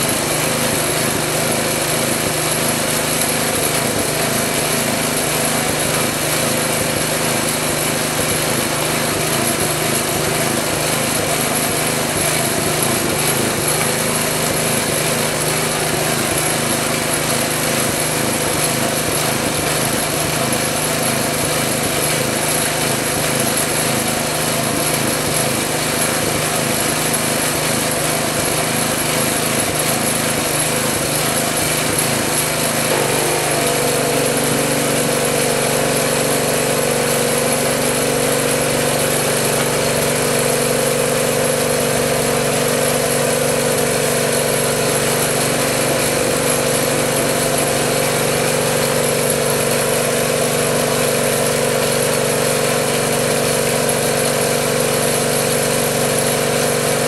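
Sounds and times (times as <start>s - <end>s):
small engine running: 0.0s - 57.0s.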